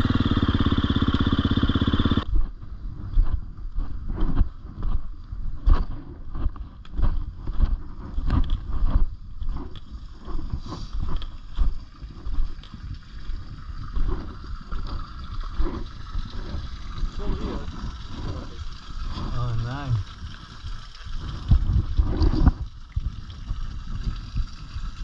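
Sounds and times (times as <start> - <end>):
dirt bike engine surging: 0.0 - 2.4
wind buffeting microphone: 2.2 - 25.0.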